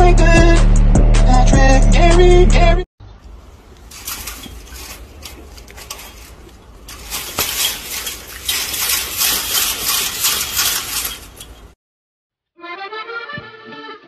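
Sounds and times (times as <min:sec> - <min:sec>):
chain-link fence rattling: 0:03.8 - 0:11.8.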